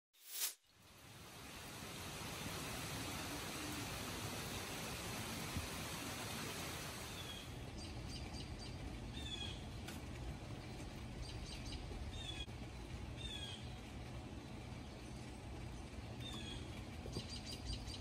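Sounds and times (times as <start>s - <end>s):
rain hissing: 0.2s - 17.6s
small bird chirping: 13.2s - 13.8s, 16.2s - 18.0s.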